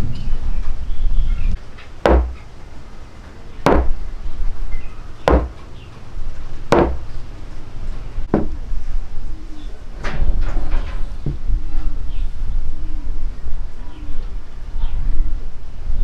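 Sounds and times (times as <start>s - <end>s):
wooden mallet knocking on workbench: 2.1s - 2.4s, 3.7s - 4.0s, 5.3s - 5.6s, 6.7s - 7.0s.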